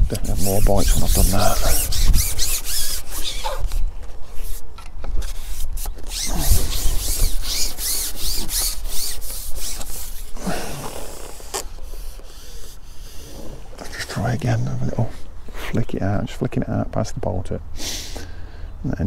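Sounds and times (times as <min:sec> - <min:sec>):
wind rumble on microphone: 0:00.0 - 0:02.5.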